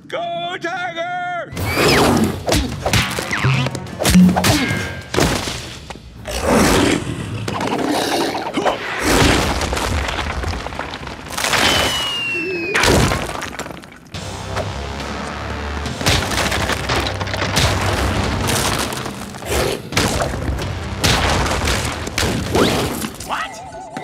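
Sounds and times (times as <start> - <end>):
action music: 1.5 - 6.5, 14.1 - 24.0
falling whistle: 11.6 - 12.8.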